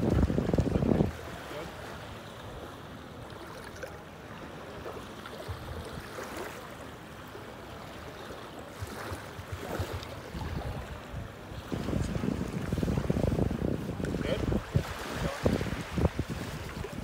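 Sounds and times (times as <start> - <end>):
wind rumbling on microphone: 0.0 - 1.4, 8.8 - 17.0
water lapping and splashing: 0.0 - 17.0.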